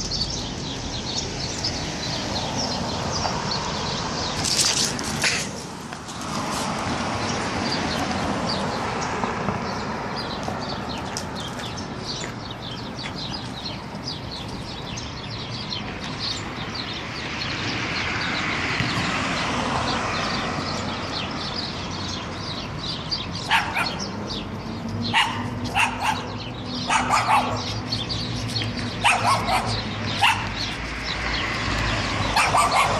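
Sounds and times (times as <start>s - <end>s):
small birds chirping: 0.0s - 32.9s
street noise: 0.0s - 32.9s
vehicle passing: 0.4s - 32.9s
dog barking: 23.5s - 24.0s, 25.1s - 27.8s, 29.0s - 30.6s, 32.3s - 32.9s.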